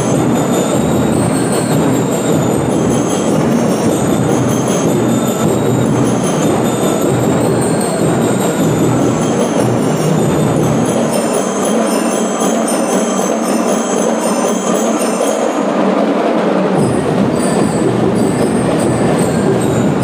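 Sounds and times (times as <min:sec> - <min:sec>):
massed drums: 0:00.0 - 0:13.2, 0:15.7 - 0:20.0
bell lyres ringing: 0:00.0 - 0:16.2, 0:16.8 - 0:20.0.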